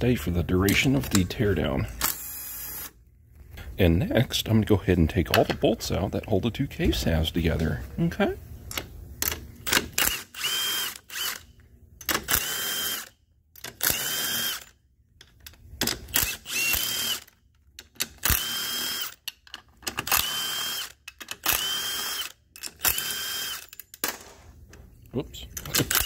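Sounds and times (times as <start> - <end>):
cordless power tool whining: 10.0 - 11.5, 13.8 - 14.7, 16.1 - 17.4, 18.2 - 19.2, 20.1 - 23.7.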